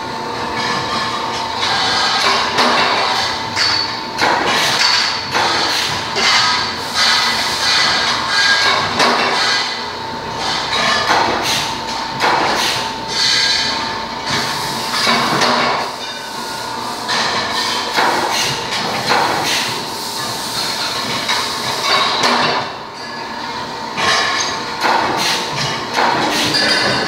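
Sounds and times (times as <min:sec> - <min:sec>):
sharp metal clanks: 0:24.0 - 0:27.0.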